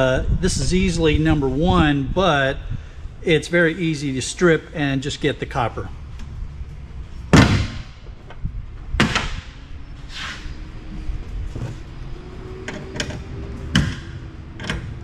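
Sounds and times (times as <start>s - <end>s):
metal parts knocking and clanking: 12.7s - 15.0s.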